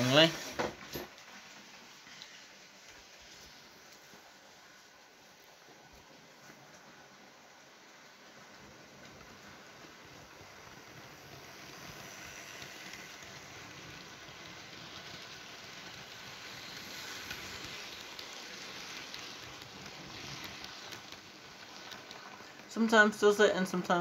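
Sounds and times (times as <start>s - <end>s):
model train wheels rattling on track: 0.0s - 4.8s, 7.9s - 24.0s.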